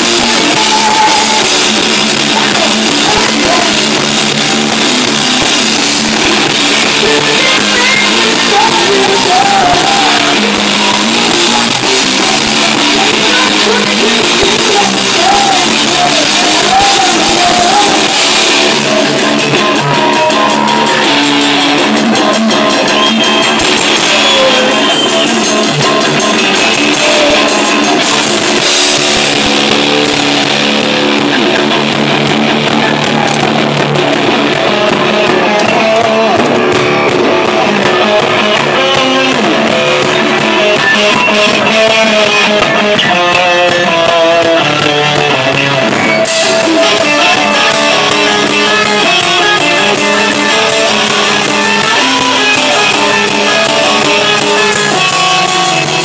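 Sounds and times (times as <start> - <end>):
person singing: 0.0 - 31.9, 32.5 - 56.0
drum kit: 0.0 - 56.0
electric guitar: 0.0 - 56.0
cymbals: 44.4 - 56.0.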